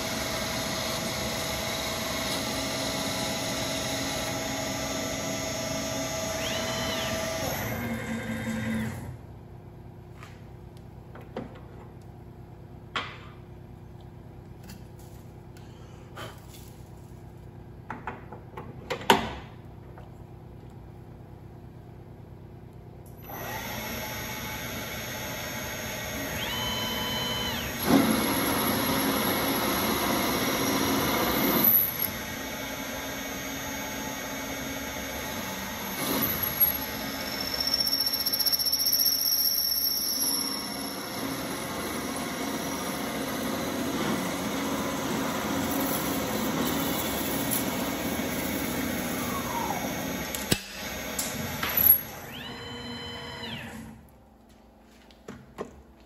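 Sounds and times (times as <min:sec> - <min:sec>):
lathe motor whine: 0:00.0 - 0:09.2, 0:23.2 - 0:54.0.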